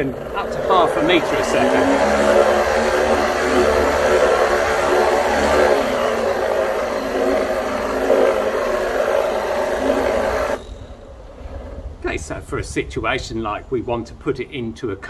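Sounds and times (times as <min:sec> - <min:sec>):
motor and gearbox whirring: 0:00.0 - 0:11.9.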